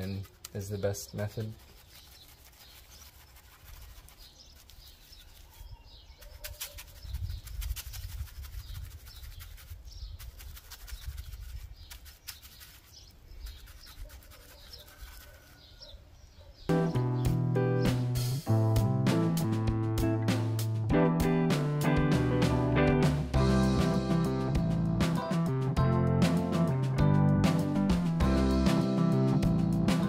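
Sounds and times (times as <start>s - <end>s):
paintbrush scratching on stone: 0.0s - 15.9s.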